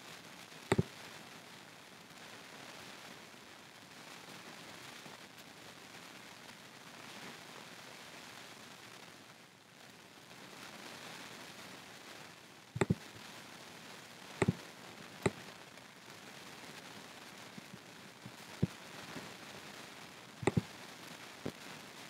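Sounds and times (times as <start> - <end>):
low steady hiss: 0.0 - 22.0
computer mouse clicks: 12.8 - 13.0, 20.4 - 20.7.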